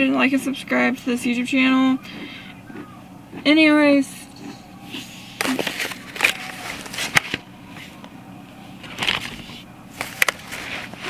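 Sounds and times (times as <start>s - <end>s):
wrapping paper rustling: 5.4s - 8.0s, 8.8s - 11.0s.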